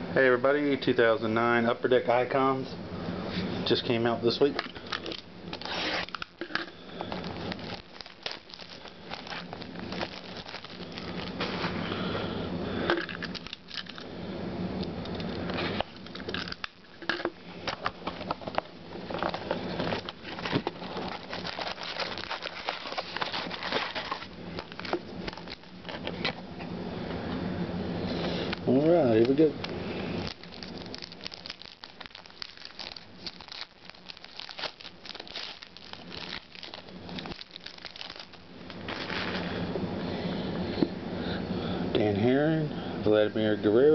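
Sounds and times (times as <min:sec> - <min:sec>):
foil packs crinkling: 0:04.4 - 0:12.3, 0:12.9 - 0:14.1, 0:15.2 - 0:26.4, 0:28.3 - 0:39.6.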